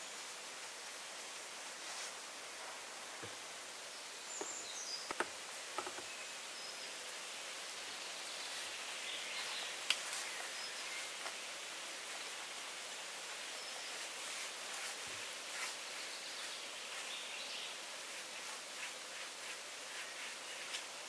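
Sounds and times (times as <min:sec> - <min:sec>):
steady forest hiss: 0:00.0 - 0:21.0
taps and knocks on roof: 0:05.1 - 0:06.1.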